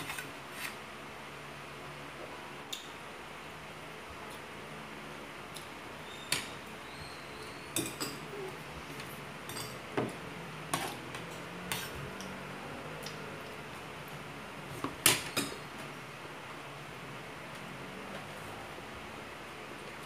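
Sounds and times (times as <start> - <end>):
cutlery clinking on dishes: 7.8 - 8.4, 9.5 - 9.8.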